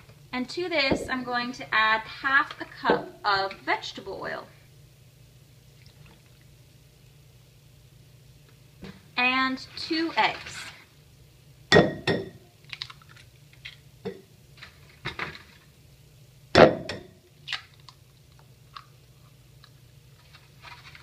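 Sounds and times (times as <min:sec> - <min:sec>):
eggs tapping on a glass bowl: 0:11.7 - 0:12.4
egg cracking: 0:12.6 - 0:13.9, 0:17.4 - 0:21.0.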